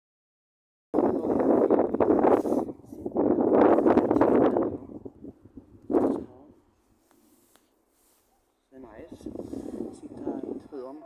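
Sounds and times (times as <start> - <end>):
man's voice: 3.3 - 5.2, 8.7 - 11.0.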